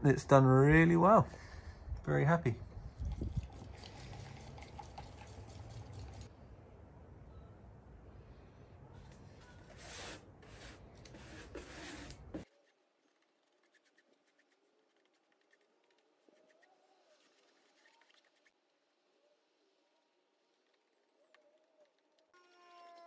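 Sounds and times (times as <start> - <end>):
paintbrush strokes on hull: 9.7 - 21.1.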